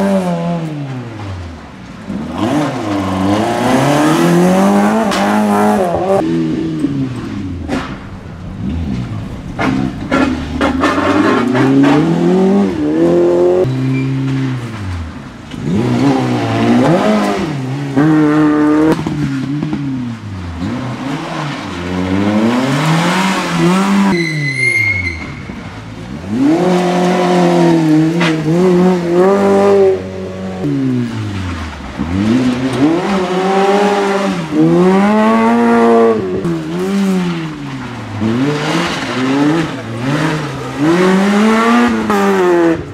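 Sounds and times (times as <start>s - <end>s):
rally car engines revving: 0.0s - 42.9s
brief high squeal: 24.1s - 25.6s.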